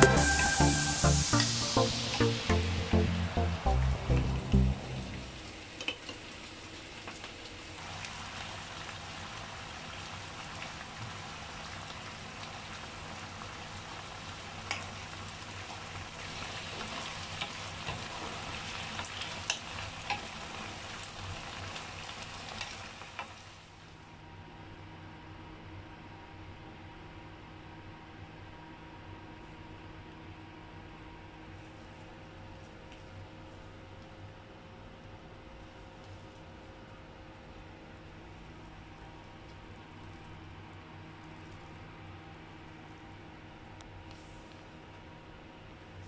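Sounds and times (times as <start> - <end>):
food sizzling in a frying pan: 0.0 - 2.9, 5.3 - 23.8.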